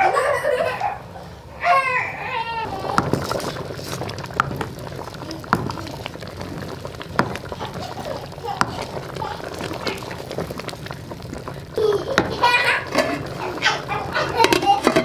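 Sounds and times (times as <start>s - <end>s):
spoon stirring thick soup: 2.7s - 15.0s
spoon knocking against pot: 12.1s - 15.0s.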